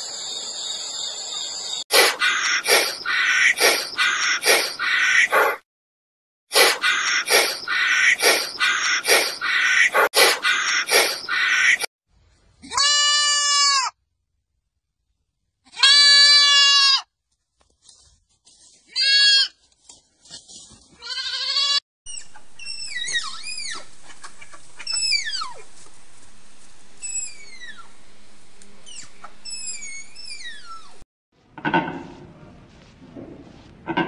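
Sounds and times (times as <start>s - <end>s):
goat kid bleating: 12.6s - 14.0s, 15.7s - 17.1s, 18.9s - 19.6s, 21.0s - 21.8s
high squeaky falling whistles: 28.9s - 31.0s.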